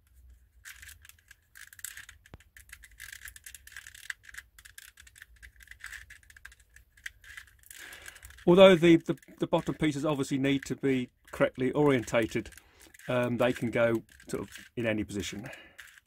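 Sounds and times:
puzzle pieces clicking and rattling: 0.2 - 16.0.

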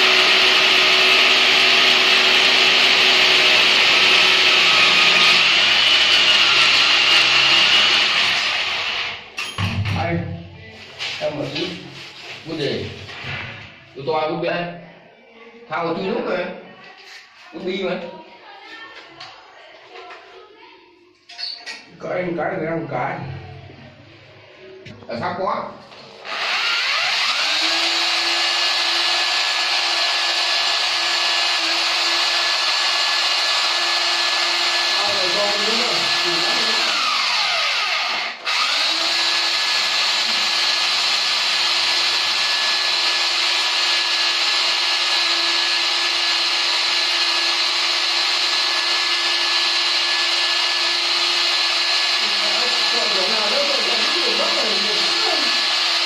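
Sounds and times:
hammer drill boring into tile: 0.0 - 9.2, 26.2 - 56.0.

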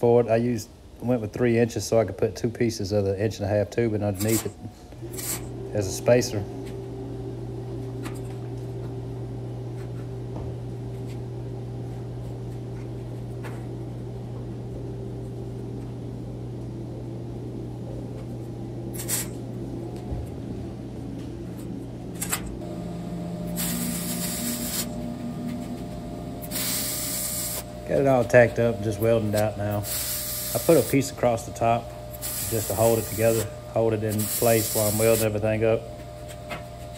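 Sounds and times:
steady low hum: 0.0 - 36.9
welder arc hissing: 4.2 - 6.4, 18.9 - 19.4, 22.2 - 35.5.

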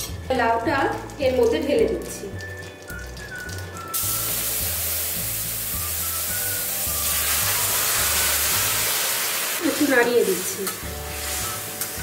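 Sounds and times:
background music with bass: 0.0 - 8.9
food sizzling in hot oil: 0.0 - 12.0.

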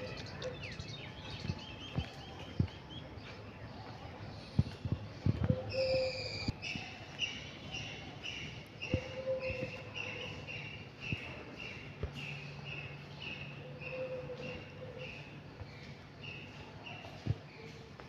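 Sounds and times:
soft footsteps: 1.2 - 5.7.

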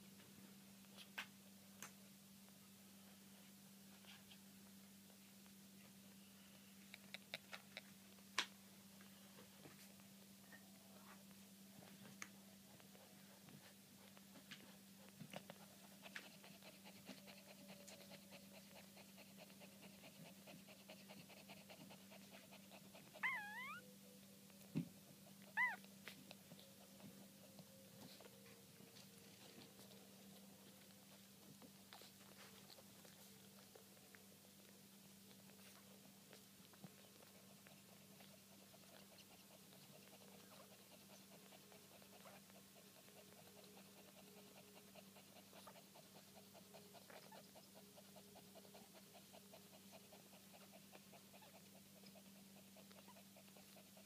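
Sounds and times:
low steady hum: 0.0 - 54.0
puppies squeaking: 23.2 - 23.8, 25.5 - 25.8.

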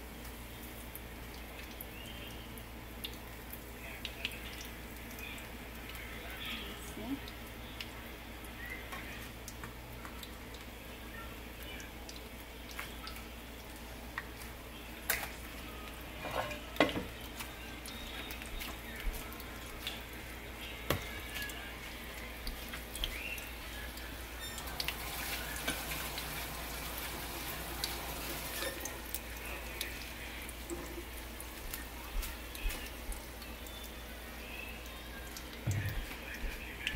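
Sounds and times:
food sizzling in hot oil: 11.4 - 36.8.

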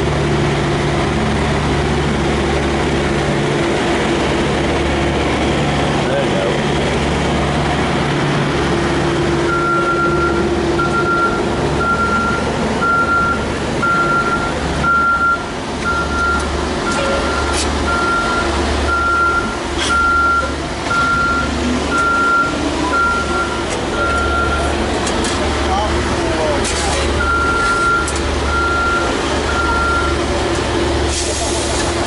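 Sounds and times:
engine low rumble: 0.0 - 32.0
reversing alarm beeping: 9.5 - 24.8, 27.2 - 30.3.

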